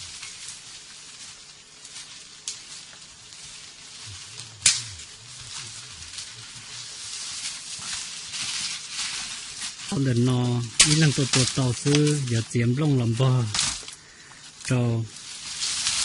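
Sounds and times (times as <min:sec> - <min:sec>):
rustling of dry leaves: 0:00.0 - 0:16.0
sharp snaps: 0:04.4 - 0:05.1, 0:10.8 - 0:12.2.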